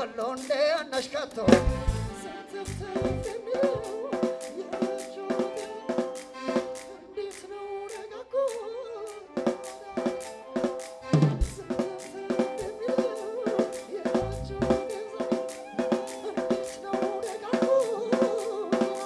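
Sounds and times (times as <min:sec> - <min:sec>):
live band playing: 0:01.4 - 0:04.4, 0:09.6 - 0:19.0
snare and kick drum strokes: 0:01.5 - 0:02.1, 0:09.5 - 0:19.0.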